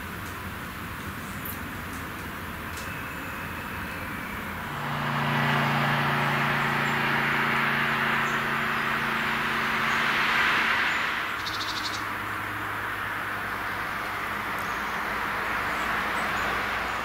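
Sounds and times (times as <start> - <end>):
vehicle engine hum passing: 0.7 - 17.0
rushing noise: 3.7 - 14.5.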